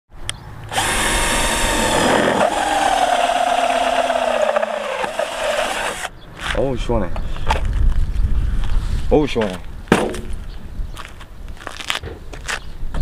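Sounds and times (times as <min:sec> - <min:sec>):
drill motor whining: 0:00.7 - 0:06.1
hole saw cutting metal: 0:00.7 - 0:06.1.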